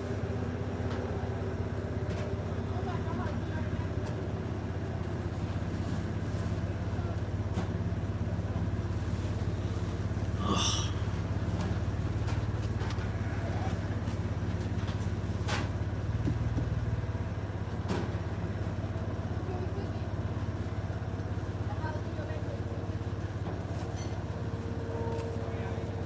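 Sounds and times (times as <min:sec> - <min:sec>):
vehicle engine humming: 0:00.0 - 0:26.0.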